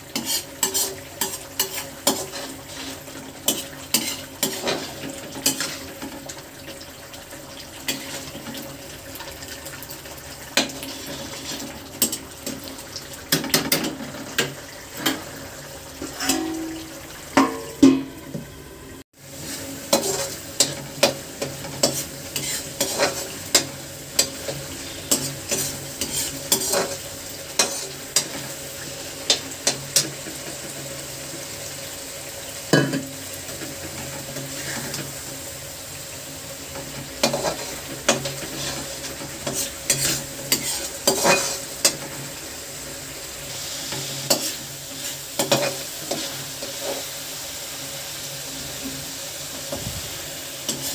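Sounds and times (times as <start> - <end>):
paste sizzling in oil: 0.0 - 50.9
metal spoon scraping a steel pan: 0.1 - 6.0, 16.0 - 18.0, 21.7 - 27.0, 37.2 - 42.0.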